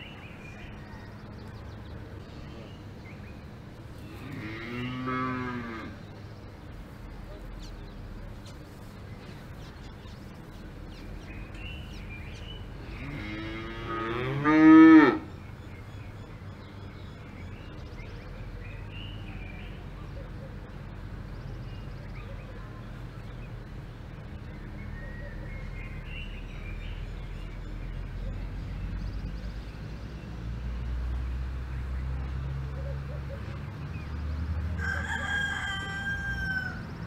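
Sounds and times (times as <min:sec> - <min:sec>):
faint pasture ambience: 0:00.0 - 0:37.0
cow mooing: 0:04.1 - 0:06.0, 0:12.8 - 0:15.3.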